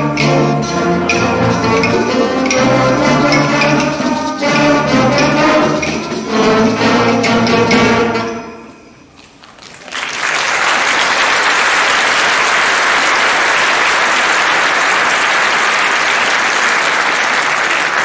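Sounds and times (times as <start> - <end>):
audience applause: 9.4 - 18.0.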